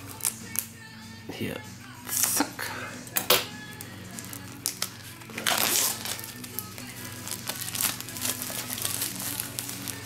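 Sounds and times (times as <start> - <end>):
plastic shrink-wrap crinkling: 4.1 - 10.0.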